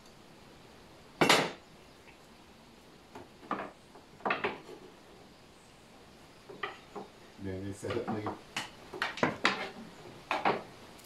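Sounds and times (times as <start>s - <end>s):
light metal clicks and knocks: 7.8s - 10.7s.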